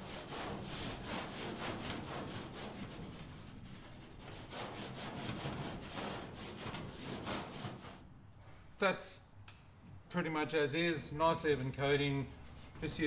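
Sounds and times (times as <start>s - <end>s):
chalk rubbing on chalkboard: 0.0s - 8.0s, 12.4s - 13.0s.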